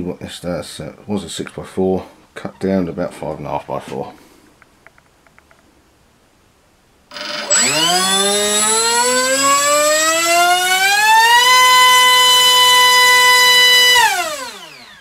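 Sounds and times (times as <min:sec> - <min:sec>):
electric motor propeller whine: 0:07.1 - 0:15.0.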